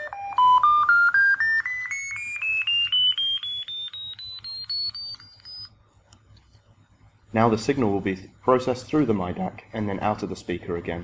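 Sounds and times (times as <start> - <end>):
electronic beep tones rising: 0.0 - 5.8.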